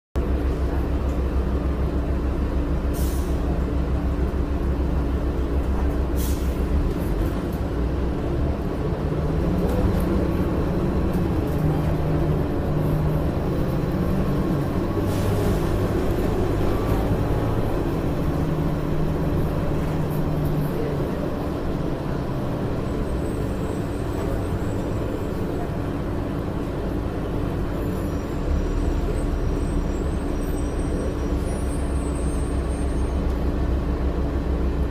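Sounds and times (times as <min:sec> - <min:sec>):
bus engine running: 0:00.2 - 0:34.9
short air hisses: 0:02.9 - 0:03.4.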